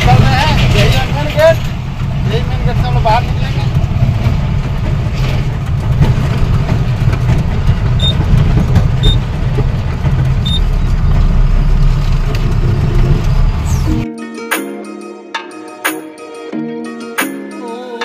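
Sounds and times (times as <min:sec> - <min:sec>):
truck diesel engine rumble: 0:00.0 - 0:14.0
background music: 0:13.9 - 0:18.0.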